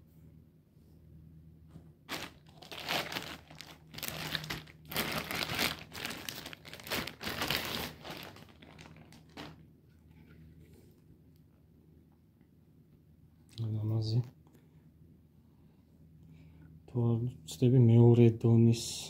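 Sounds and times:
plastic wrapping crinkling: 0:02.1 - 0:10.3.

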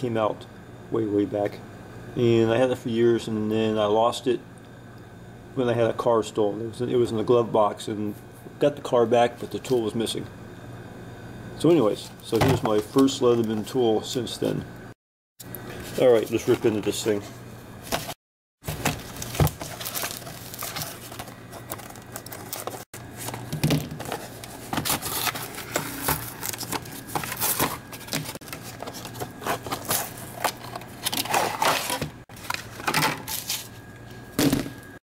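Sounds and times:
plastic and cardboard crinkling: 0:17.9 - 0:33.8.

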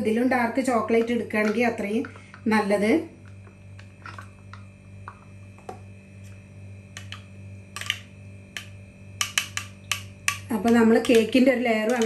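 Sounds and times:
steady low hum: 0:00.0 - 0:12.0
plastic cup squeezed: 0:03.8 - 0:04.4
metal spoon stirring in bowl: 0:08.6 - 0:12.0.

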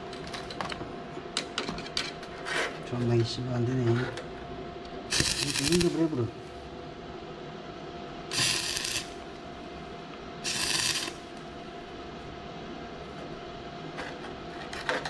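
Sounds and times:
faint steady hum: 0:00.0 - 0:15.0
welding arc crackling: 0:05.1 - 0:06.3, 0:08.3 - 0:09.4, 0:10.4 - 0:11.5.

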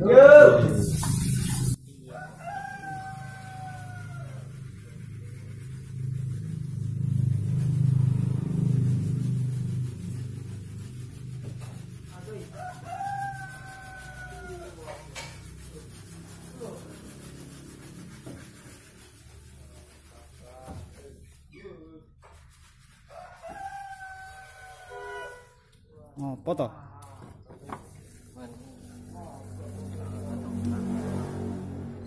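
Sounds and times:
rooster crowing: 0:02.0 - 0:05.1, 0:12.2 - 0:15.4, 0:23.1 - 0:25.6.

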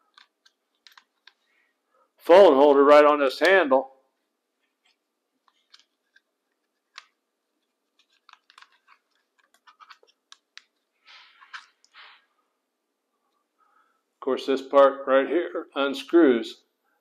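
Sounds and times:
plastic parts clicking and scratching: 0:00.0 - 0:01.5, 0:04.6 - 0:12.0.

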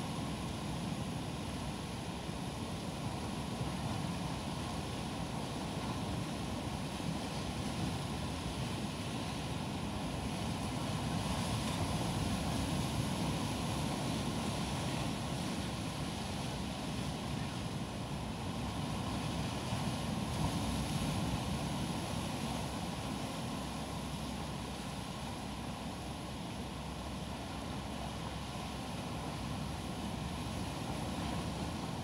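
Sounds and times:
waves breaking on rocky shore: 0:00.0 - 0:32.0.

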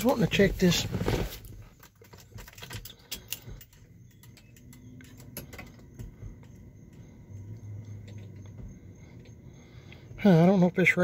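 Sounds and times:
faint low hum: 0:00.0 - 0:11.0
keys clicking and rattling: 0:01.7 - 0:06.7.

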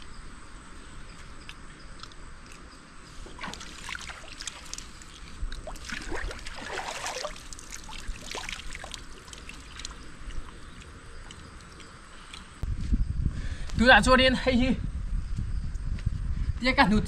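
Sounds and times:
water splashing and trickling: 0:03.0 - 0:12.6.

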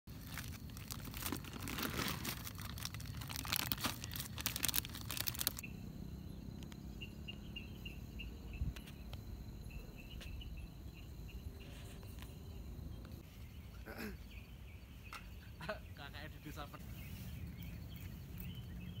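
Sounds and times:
dense crackling rustling noise: 0:00.1 - 0:05.6
crickets chirping: 0:00.1 - 0:19.0.

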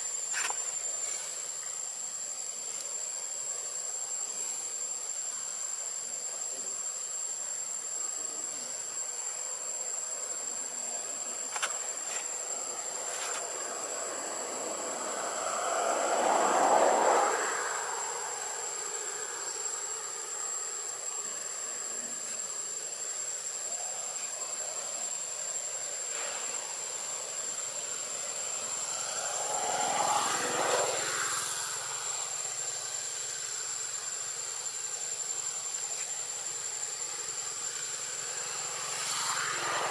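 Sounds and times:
steady hiss: 0:00.0 - 0:39.9
distant engine: 0:28.4 - 0:33.4.

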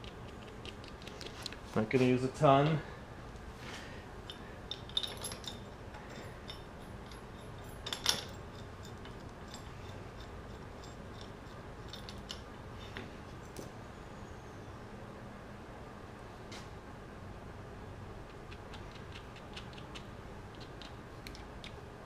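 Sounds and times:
metal bolts and washers clinking: 0:04.2 - 0:13.7.

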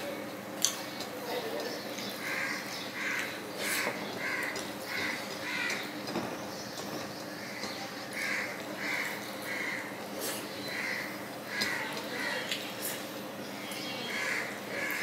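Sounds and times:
crow cawing: 0:02.2 - 0:05.9, 0:08.2 - 0:10.0, 0:10.6 - 0:12.5, 0:14.0 - 0:15.0.

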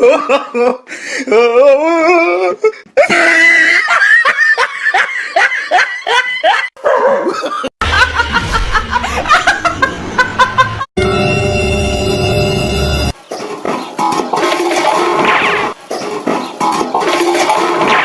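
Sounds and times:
woman laughing hard: 0:00.0 - 0:10.9.

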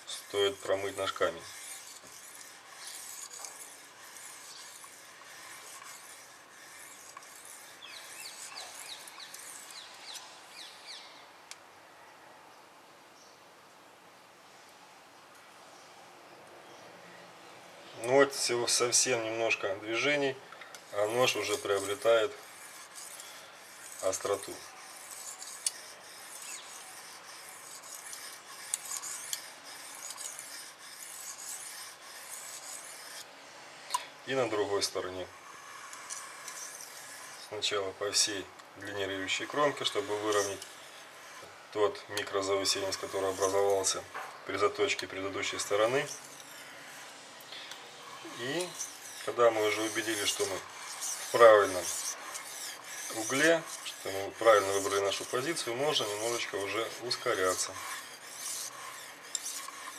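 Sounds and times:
knife rasping on sharpening stone: 0:00.0 - 0:10.2, 0:18.0 - 0:33.3, 0:34.4 - 0:59.9
birds chirping: 0:07.8 - 0:11.3.

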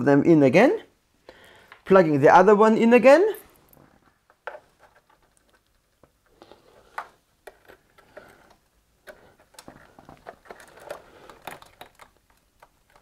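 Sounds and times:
hands clicking and tapping plastic: 0:09.0 - 0:13.0.

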